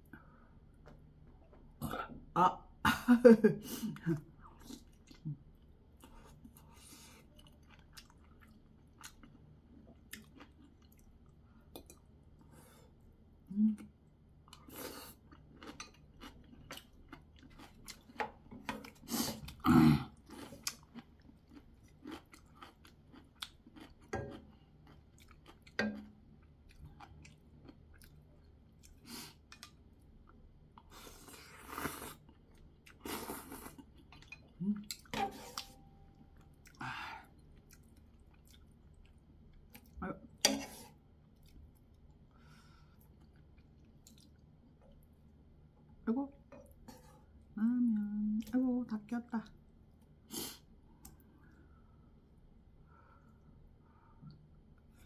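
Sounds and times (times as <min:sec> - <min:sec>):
person chewing noodles: 0:04.0 - 0:13.1, 0:13.7 - 0:45.3.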